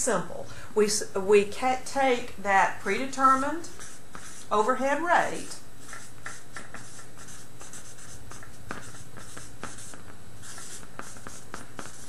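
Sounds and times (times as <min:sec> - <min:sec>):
marker scratching on paper: 0:02.9 - 0:12.0.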